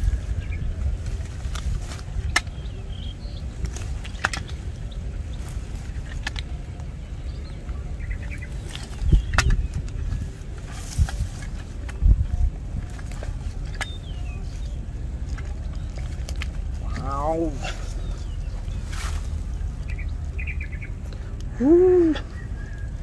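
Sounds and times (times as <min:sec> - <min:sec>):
rustling in grass: 0:00.0 - 0:03.0, 0:08.3 - 0:20.8
bamboo traps clicking and knocking: 0:01.0 - 0:02.8, 0:03.6 - 0:07.0, 0:08.6 - 0:14.4, 0:15.2 - 0:17.4.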